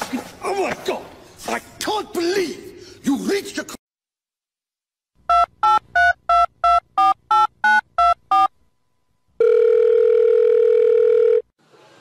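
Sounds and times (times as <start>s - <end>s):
long steady telephone tone: 9.3s - 11.5s.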